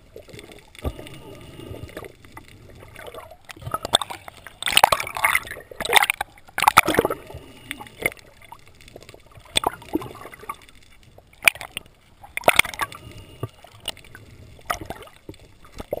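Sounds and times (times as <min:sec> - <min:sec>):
water gurgling and sloshing: 0:00.0 - 0:16.0.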